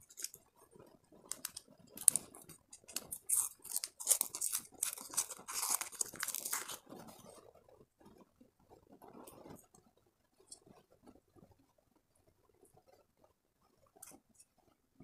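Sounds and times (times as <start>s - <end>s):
wrapper crinkling and tearing: 0.0s - 0.4s, 1.3s - 6.9s
faint handling noise: 0.0s - 7.2s.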